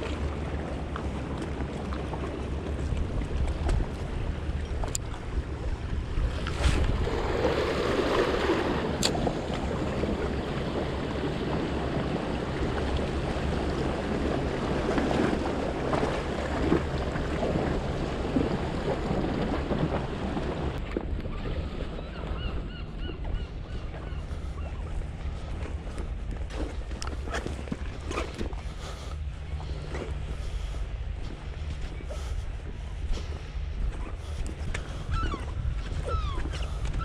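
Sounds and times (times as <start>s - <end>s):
sea washing against rocks: 0.0s - 22.6s
wind buffeting microphone: 0.0s - 37.0s.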